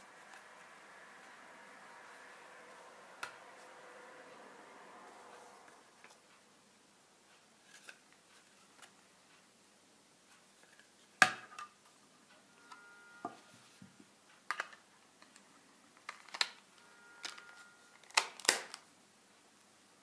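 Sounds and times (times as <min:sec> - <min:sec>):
plastic phone case clicks: 0:18.0 - 0:18.8.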